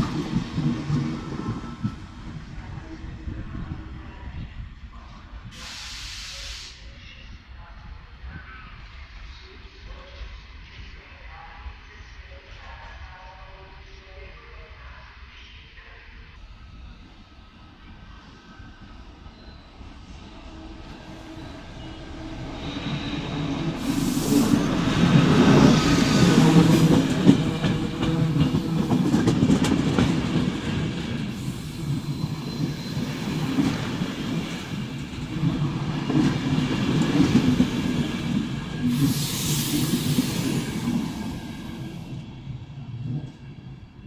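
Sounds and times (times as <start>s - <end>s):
train wheels on track: 0.0s - 7.0s, 17.2s - 44.0s
passenger train passing: 0.0s - 44.0s
brief hiss: 5.5s - 7.0s.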